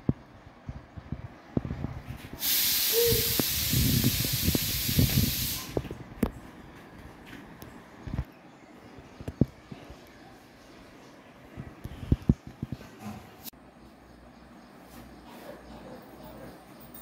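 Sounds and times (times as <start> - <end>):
loud steady hiss: 2.4 - 5.8.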